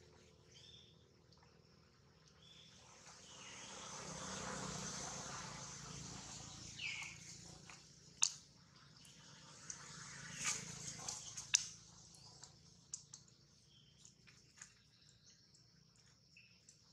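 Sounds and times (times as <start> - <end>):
broad rushing noise: 2.9 - 7.7, 9.4 - 11.8.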